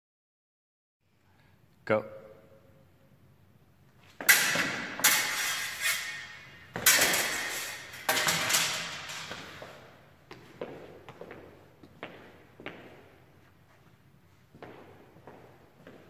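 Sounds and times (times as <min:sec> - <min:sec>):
fencing swords clashing: 0:04.1 - 0:10.0.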